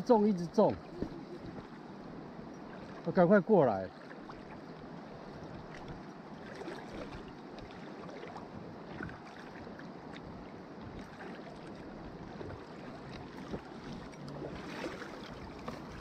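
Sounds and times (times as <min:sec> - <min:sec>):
creek water flowing over stones: 0:10.8 - 0:16.0.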